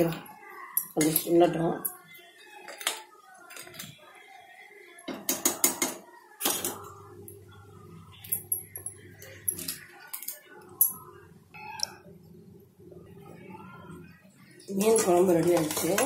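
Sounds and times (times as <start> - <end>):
kitchen utensils clinking: 0.0 - 3.9, 8.1 - 11.1, 14.7 - 16.0.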